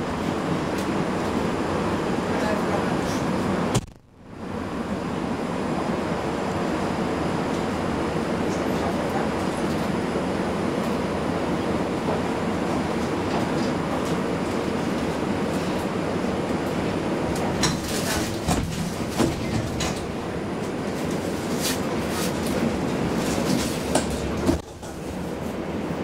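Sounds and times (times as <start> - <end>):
tram equipment hum: 0.0 - 26.0
sharp clicks and knocks: 3.8 - 4.2.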